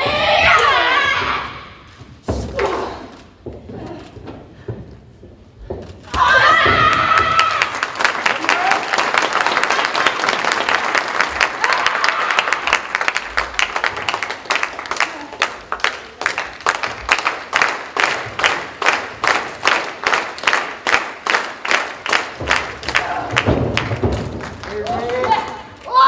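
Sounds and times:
audience clapping: 6.8 - 25.8.

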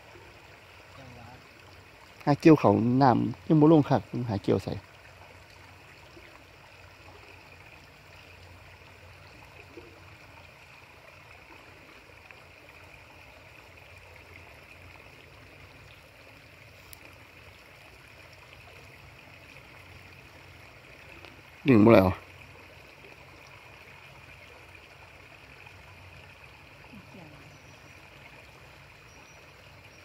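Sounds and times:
faint outdoor hiss: 0.0 - 30.0
tiny ticks: 16.8 - 17.1.

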